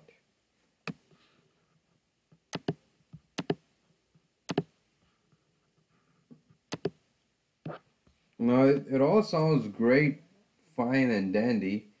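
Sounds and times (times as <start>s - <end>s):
computer mouse clicks: 2.5s - 2.8s, 3.4s - 3.6s, 4.5s - 4.7s, 6.7s - 7.0s.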